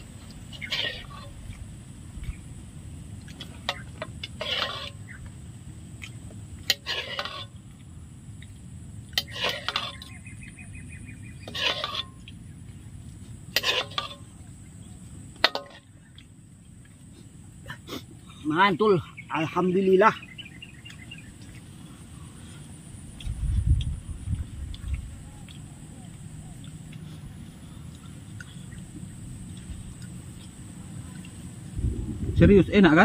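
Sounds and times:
low background rumble: 0.0 - 33.0.

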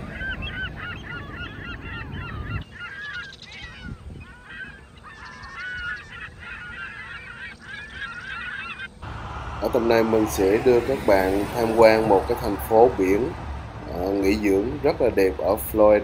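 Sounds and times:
gulls calling: 0.0 - 16.0
low background rumble: 9.0 - 16.0.

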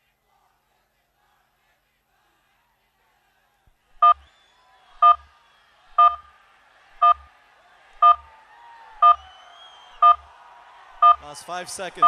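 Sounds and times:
countdown timer beeps: 6.0 - 6.2, 7.0 - 7.2, 8.0 - 8.2, 10.0 - 10.2.

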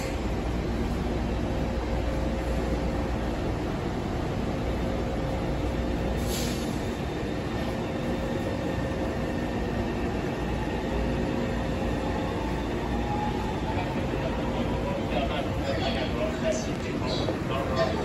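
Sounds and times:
train rumble and hum: 0.0 - 18.0
air hiss: 6.2 - 6.8.

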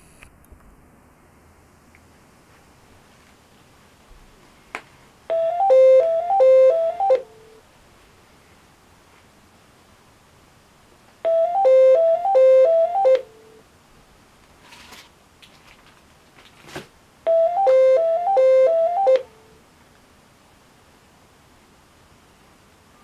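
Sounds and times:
telephone electronic ringtone: 5.3 - 7.6, 11.2 - 13.6, 17.3 - 19.4.

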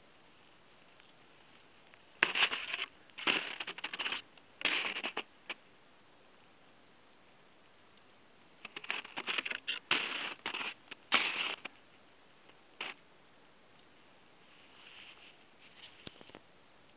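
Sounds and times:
footsteps crunching on snow: 8.7 - 11.7.

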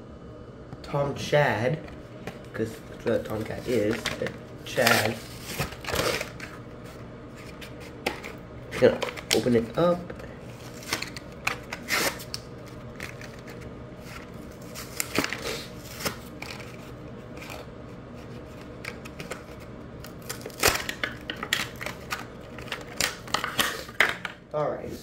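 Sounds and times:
toy packaging being torn open: 10.7 - 16.8, 18.8 - 23.9.

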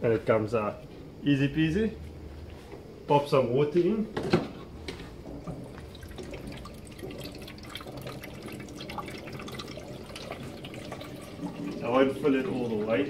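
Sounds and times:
water trickling into plastic tank: 4.8 - 13.0
water drips and splashes: 5.2 - 13.0.

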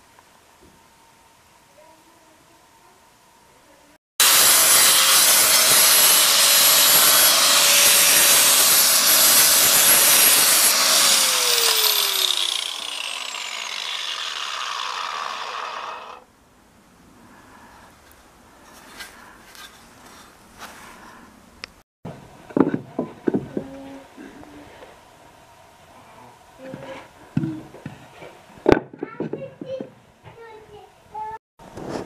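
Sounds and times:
angle grinder sanding wood: 4.2 - 16.2
grinder disc spinning down: 4.2 - 16.2.

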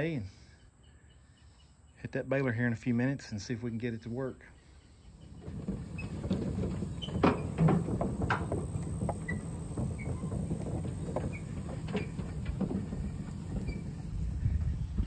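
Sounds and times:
vehicle rumble: 5.1 - 15.0
knocks and rattles: 5.3 - 14.7.

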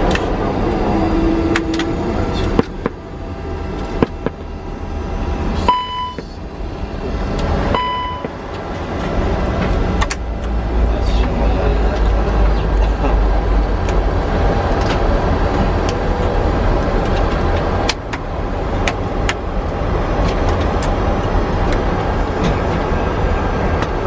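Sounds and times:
low cockpit rumble: 0.0 - 24.0
short electronic beeps: 5.7 - 6.3, 7.8 - 8.3.

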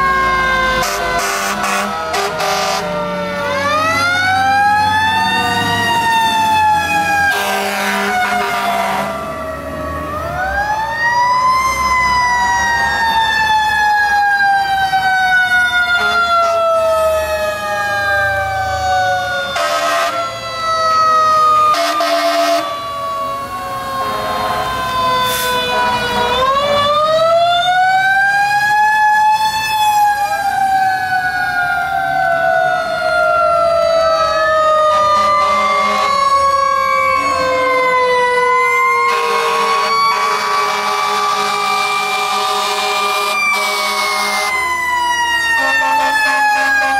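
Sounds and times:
diesel engines rumbling: 0.0 - 46.9
other sirens sweeping: 0.0 - 46.9
wailing siren: 0.0 - 46.9
short horn blasts: 0.8 - 2.9, 7.3 - 9.1, 42.2 - 44.5.

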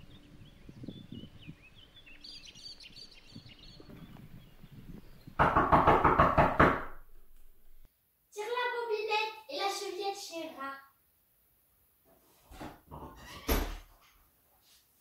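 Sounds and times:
birds chirping: 0.0 - 6.6
rapid knocking on door: 5.3 - 7.1.

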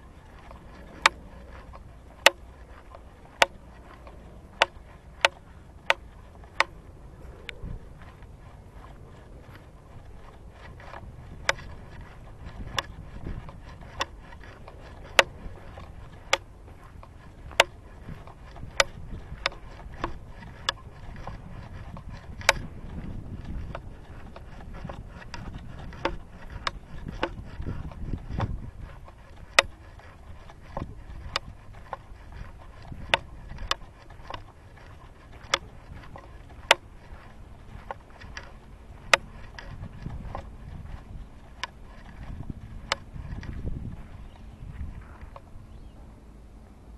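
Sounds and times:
footsteps ticking: 0.0 - 46.0.

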